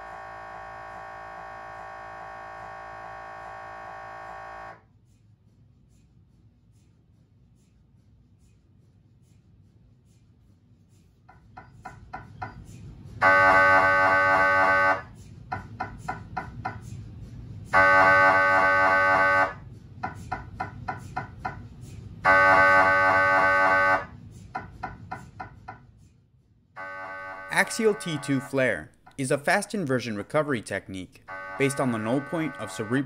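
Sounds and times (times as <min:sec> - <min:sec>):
mri scanner loud buzzing: 0:00.0 - 0:04.8, 0:13.2 - 0:15.0, 0:17.8 - 0:19.6, 0:22.3 - 0:24.1, 0:26.8 - 0:28.6, 0:31.2 - 0:33.0.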